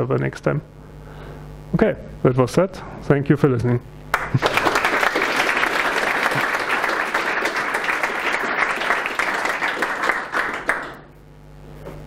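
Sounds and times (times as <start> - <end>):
audience applauding: 4.1 - 11.2.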